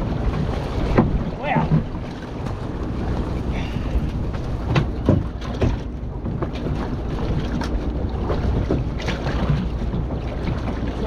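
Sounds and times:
water around boat: 0.0 - 11.0
wind on microphone: 0.0 - 11.0
sharp knocks and clatters: 4.6 - 6.9.

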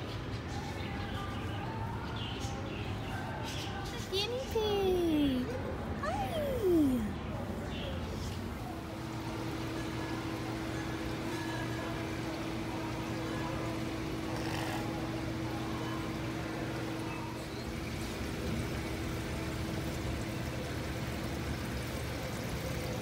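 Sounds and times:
low pump hum: 5.0 - 23.0
water trickling: 9.0 - 23.0.

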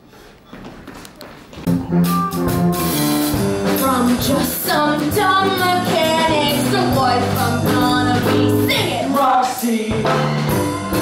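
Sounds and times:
jazzy music with drum kit: 1.6 - 11.0.

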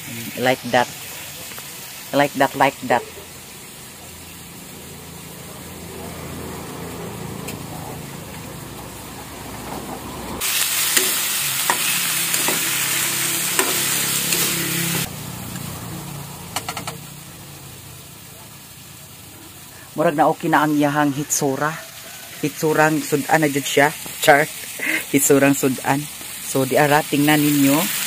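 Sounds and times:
pork sizzling in a pan: 0.0 - 28.0
metal spatula scraping pan: 9.6 - 15.1
loud steady hiss: 10.4 - 16.3, 17.0 - 28.0.

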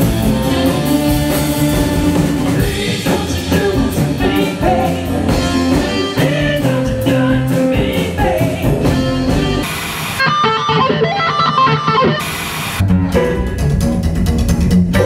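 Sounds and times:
live band music: 0.0 - 15.0
electric guitar solo: 10.2 - 13.5
tv static hiss: 11.8 - 12.8.

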